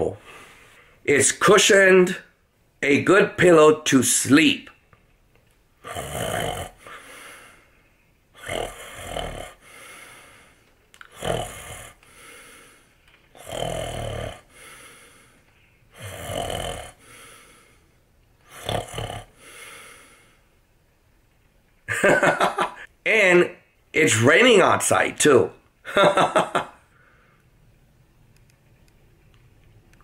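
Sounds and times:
man snoring: 0:05.8 - 0:07.6, 0:08.4 - 0:12.8, 0:13.4 - 0:15.3, 0:15.9 - 0:17.8, 0:18.4 - 0:20.4.

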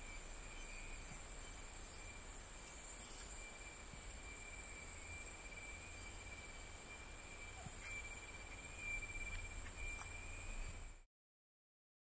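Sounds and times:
faint low rumble: 0:00.0 - 0:11.1
lower insect whine: 0:00.0 - 0:11.1
shrill insect drone: 0:00.0 - 0:11.1.

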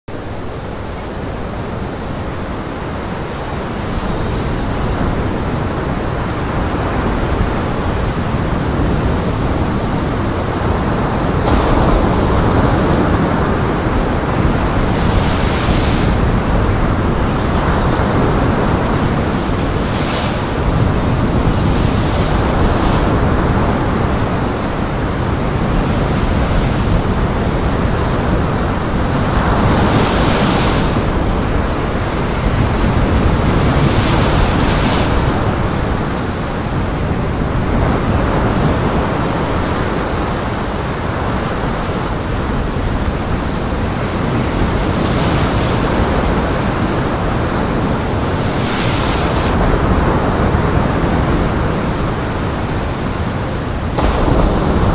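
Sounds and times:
waves breaking and splashing: 0:00.1 - 0:54.9
wind rushing: 0:07.1 - 0:40.4.

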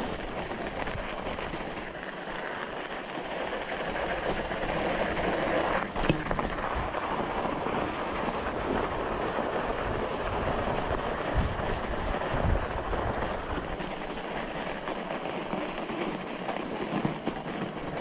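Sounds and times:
bike tyres rolling over snow: 0:00.0 - 0:18.0
wind on microphone: 0:04.0 - 0:15.8.

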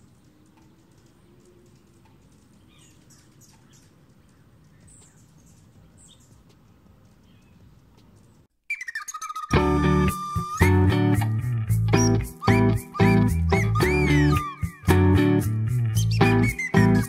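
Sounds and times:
hummingbirds chirping: 0:00.0 - 0:09.1, 0:15.8 - 0:17.0
guitar music: 0:09.5 - 0:17.0.

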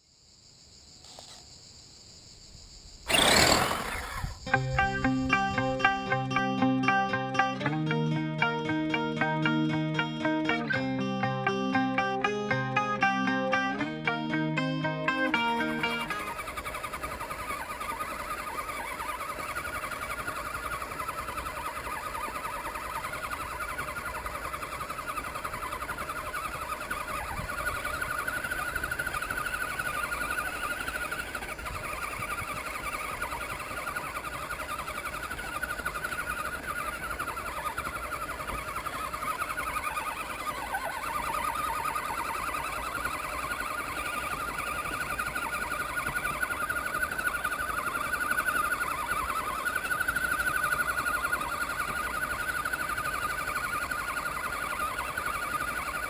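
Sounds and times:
electric motor whining: 0:03.1 - 0:06.2.

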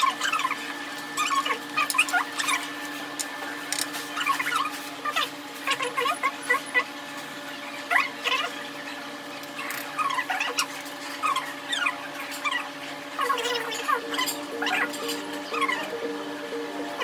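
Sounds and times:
steady held tones: 0:13.7 - 0:17.0
squeaky sliding notes: 0:13.8 - 0:17.0.

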